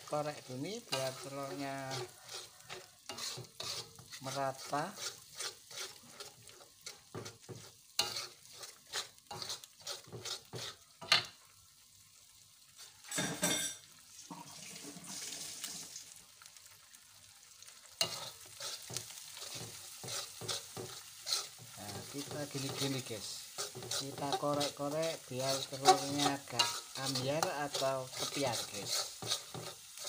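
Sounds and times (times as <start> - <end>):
metal spatula scraping wok: 0.0 - 11.3, 18.0 - 30.0
egg sizzling: 0.0 - 30.0.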